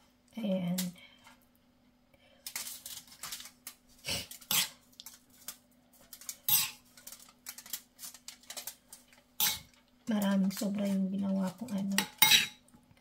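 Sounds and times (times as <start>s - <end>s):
faint steady hum: 0.0s - 13.0s
metal spoon scraping ceramic bowl: 4.5s - 4.7s, 6.5s - 6.8s, 9.4s - 9.7s, 12.0s - 12.6s.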